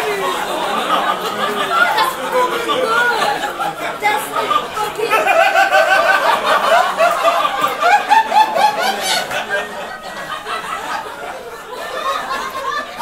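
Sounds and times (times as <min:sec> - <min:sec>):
audience laughing: 0:00.0 - 0:13.0.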